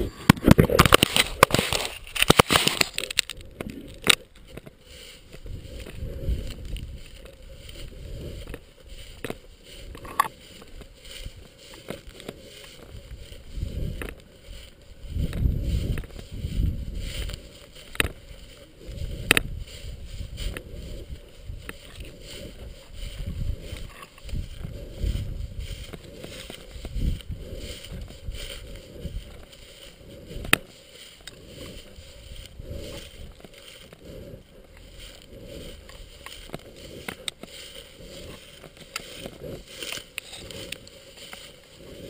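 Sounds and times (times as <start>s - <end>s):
clicks and knocks on camera: 0.1s - 4.8s
fur rubbing on microphone: 4.9s - 42.0s.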